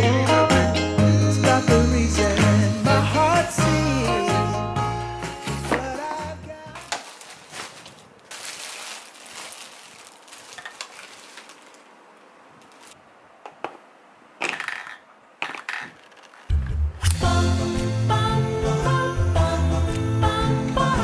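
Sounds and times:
plastic packaging crinkling: 5.6s - 13.0s
plastic parts clicking: 14.4s - 16.6s.

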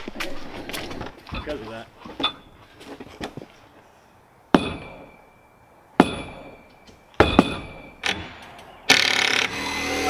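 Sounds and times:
hammer strikes with metallic ring: 4.6s - 5.2s, 6.0s - 8.0s.

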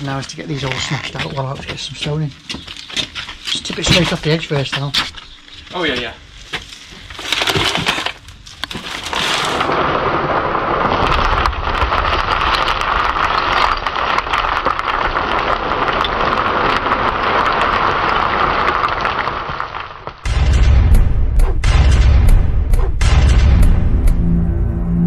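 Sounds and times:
stone rubble pouring and rattling: 7.1s - 20.2s.

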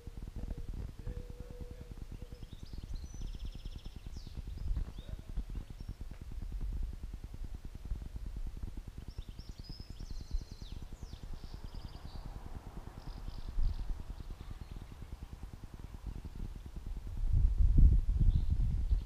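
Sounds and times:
small bird chirping: 0.0s - 6.3s, 8.8s - 16.8s
wind buffeting microphone: 0.0s - 19.0s.

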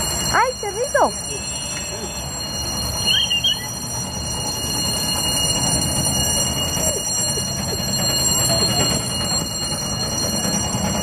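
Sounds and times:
steam locomotive rumble: 0.0s - 11.0s
street traffic: 0.0s - 11.0s
high chirp: 3.0s - 4.0s.

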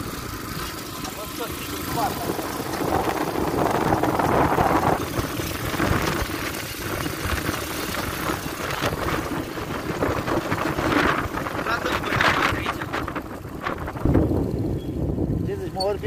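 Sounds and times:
quad bike engine running: 0.0s - 16.0s.

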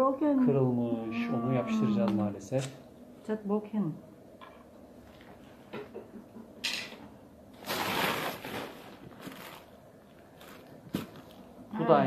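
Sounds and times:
bags rustling and crinkling: 7.6s - 11.5s.

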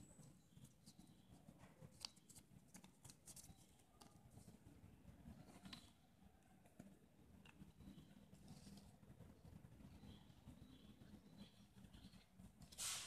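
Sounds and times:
paper being folded: 1.7s - 4.5s.

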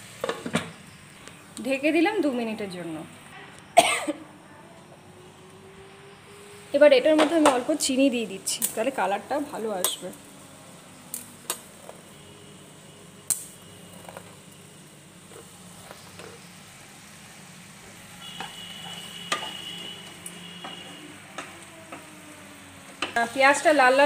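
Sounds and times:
onions sizzling in oil: 0.0s - 3.2s, 4.8s - 24.0s
wooden spatula scraping: 13.8s - 14.5s, 15.2s - 16.5s.

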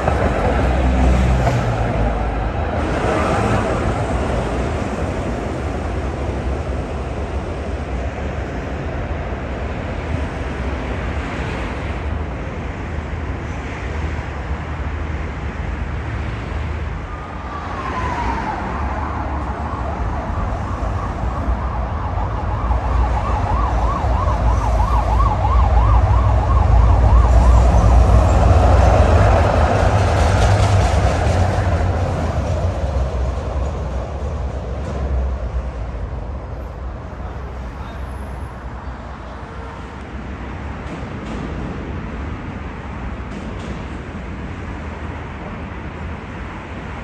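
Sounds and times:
street traffic rumble: 0.0s - 47.0s
emergency vehicle siren: 17.0s - 29.9s.

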